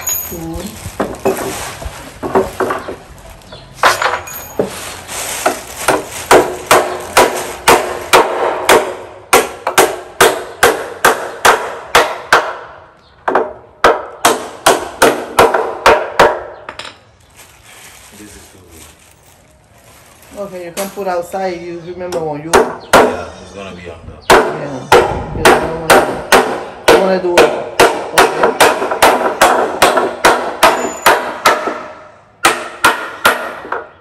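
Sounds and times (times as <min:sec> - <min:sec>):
hammer driving nails into wood: 0:24.3 - 0:33.9.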